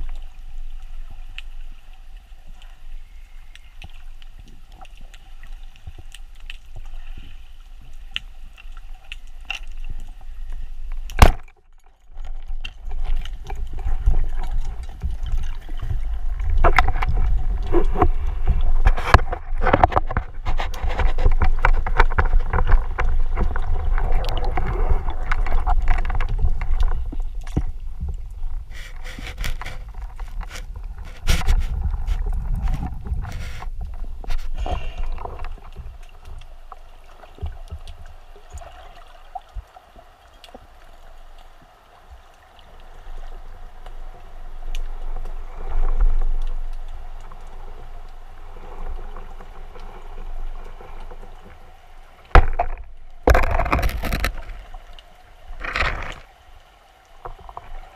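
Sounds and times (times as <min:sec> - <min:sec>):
underwater rumble of moving water: 0:00.0 - 0:57.9
clicks and knocks: 0:52.3 - 0:54.6.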